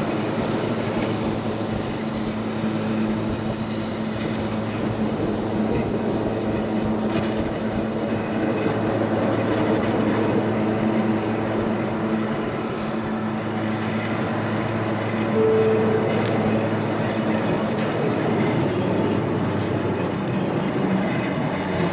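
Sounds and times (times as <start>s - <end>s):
electric train rumbling on track: 0.0s - 21.9s
brief higher tone: 15.3s - 16.2s.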